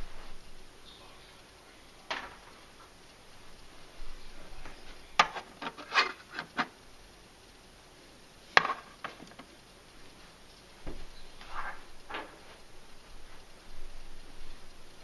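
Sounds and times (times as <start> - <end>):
light rubbing: 3.7 - 6.8, 8.6 - 14.8.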